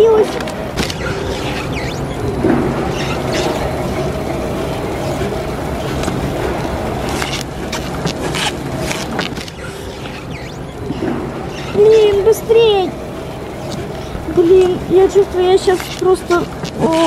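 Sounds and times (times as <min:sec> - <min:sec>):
turntable motor humming: 0:00.0 - 0:17.0
stretch film crackles: 0:02.8 - 0:10.8, 0:11.5 - 0:17.0.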